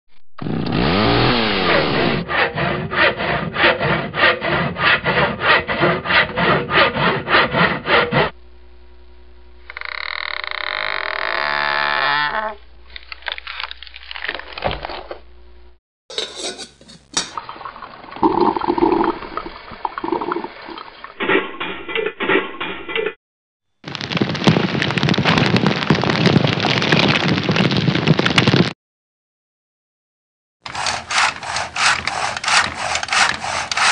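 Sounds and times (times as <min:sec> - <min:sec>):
campfire crackling: 0:23.8 - 0:28.7.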